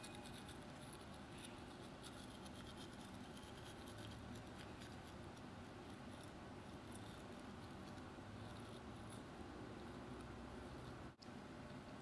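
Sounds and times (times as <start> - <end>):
toothbrush scrubbing teeth: 0.0 - 9.3.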